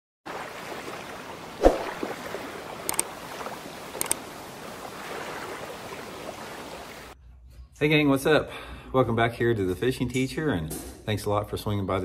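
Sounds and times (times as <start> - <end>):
water-like wash: 0.3 - 7.2
splash-like thump: 1.6 - 2.5.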